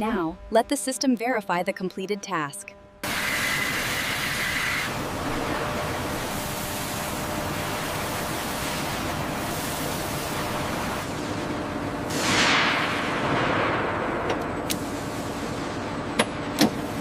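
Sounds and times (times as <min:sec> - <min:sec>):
faint steady hum: 0:00.0 - 0:12.1
metal-cutting machine hissing: 0:03.0 - 0:11.0.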